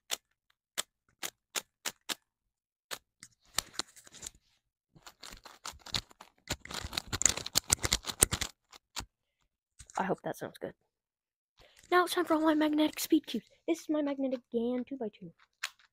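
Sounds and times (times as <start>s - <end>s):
puzzle cube faces clicking: 0.0s - 2.2s, 5.1s - 9.1s.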